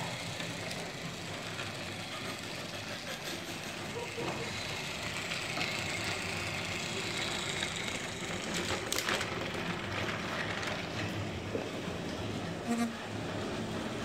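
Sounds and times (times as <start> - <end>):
toy train motor whir: 0.0 - 10.8.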